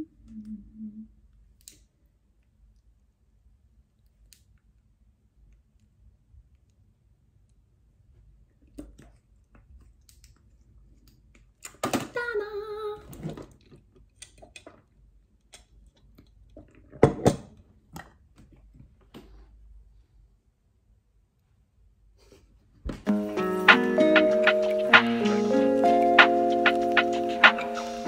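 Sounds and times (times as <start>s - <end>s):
woman humming: 0.0s - 1.2s.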